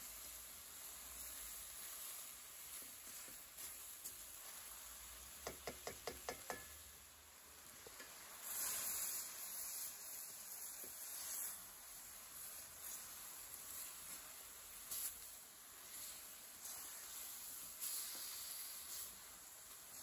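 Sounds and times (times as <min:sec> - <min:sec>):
faint sizzle in a pan: 0:00.0 - 0:20.0
spoon tapping against pan: 0:05.3 - 0:06.9, 0:07.8 - 0:08.2
spoon scraping pan: 0:07.8 - 0:10.0.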